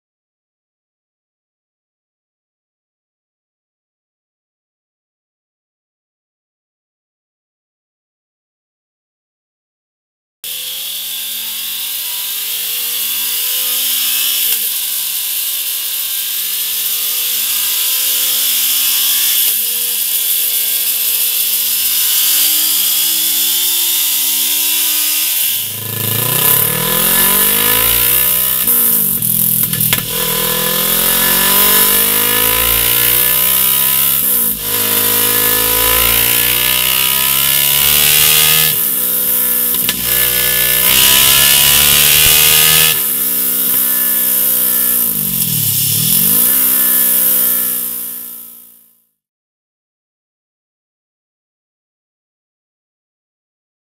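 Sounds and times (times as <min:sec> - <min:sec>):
motorcycle engine revving: 0:10.5 - 0:48.8.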